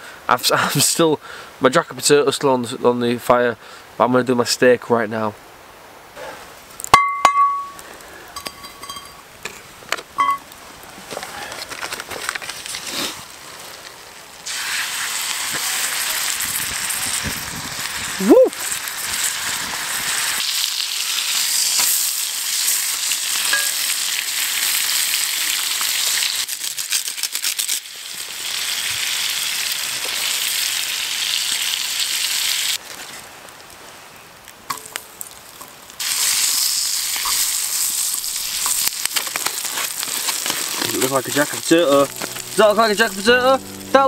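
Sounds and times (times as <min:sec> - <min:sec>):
crackling embers: 0:06.2 - 0:44.0
steak sizzling in a frying pan: 0:14.4 - 0:32.8, 0:36.0 - 0:44.0.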